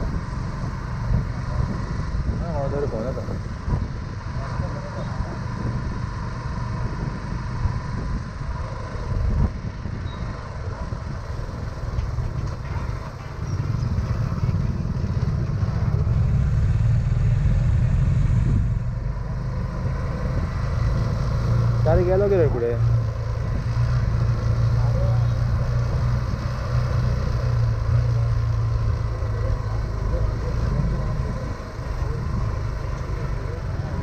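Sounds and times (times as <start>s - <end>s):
motorcycle engine rumble: 0.0s - 34.0s.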